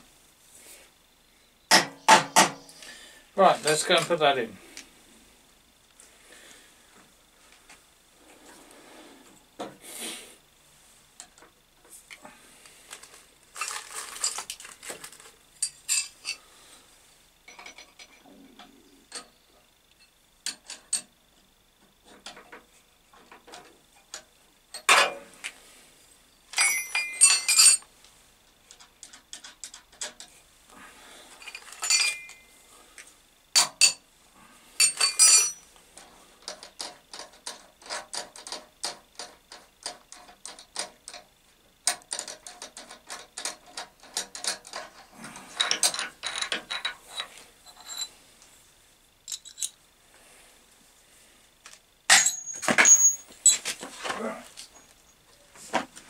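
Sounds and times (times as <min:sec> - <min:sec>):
metallic clinks and knocks: 0:17.5 - 0:18.2, 0:26.5 - 0:27.8, 0:31.4 - 0:32.5, 0:33.6 - 0:34.0, 0:34.8 - 0:35.7, 0:45.6 - 0:48.1, 0:49.3 - 0:49.8, 0:52.1 - 0:53.7.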